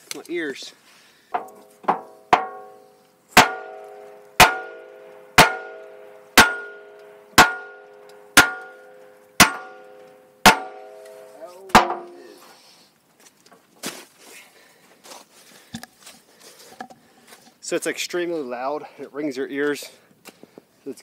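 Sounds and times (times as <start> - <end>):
hammer striking steel wrench: 1.4 - 2.8, 3.4 - 12.2.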